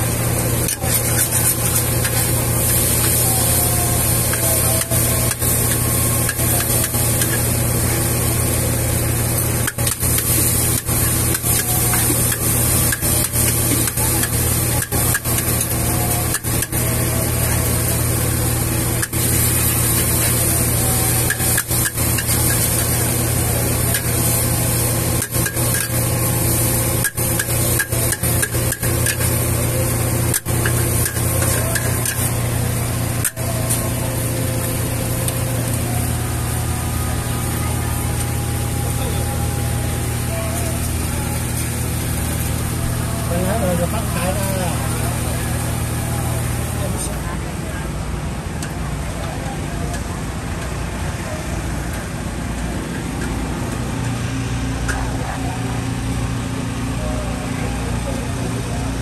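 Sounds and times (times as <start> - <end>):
gas burner and frying roar: 0.0 - 59.0
metal spatula scraping wok: 0.4 - 7.8.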